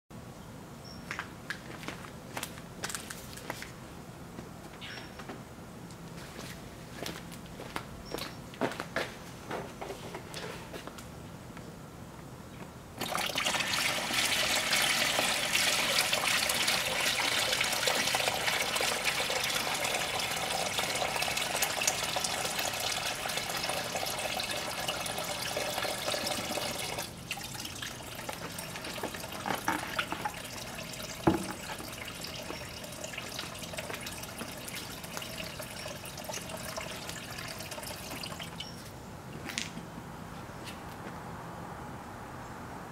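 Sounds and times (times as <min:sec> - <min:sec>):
water splashing into plastic tub: 0:13.0 - 0:38.5
submersible pump running: 0:13.0 - 0:38.6
water flowing: 0:13.0 - 0:38.7.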